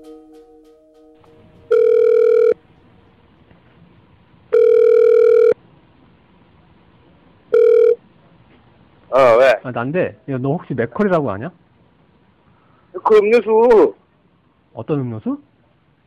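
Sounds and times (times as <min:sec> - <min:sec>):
faint line hiss: 0:00.0 - 0:04.5
telephone ringback tone: 0:01.2 - 0:02.8, 0:04.5 - 0:05.6, 0:07.5 - 0:08.0.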